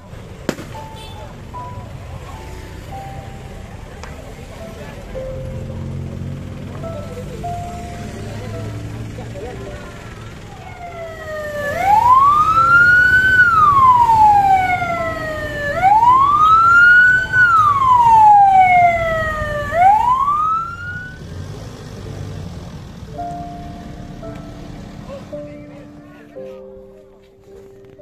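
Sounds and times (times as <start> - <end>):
vehicle siren wailing: 9.9 - 21.3.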